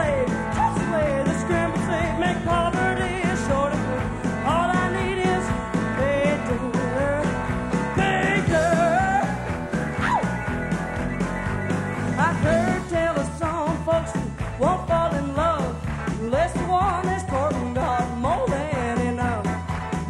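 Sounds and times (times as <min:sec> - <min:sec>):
country-rock band playing: 0:00.0 - 0:20.0
lead guitar bending notes: 0:03.9 - 0:12.9.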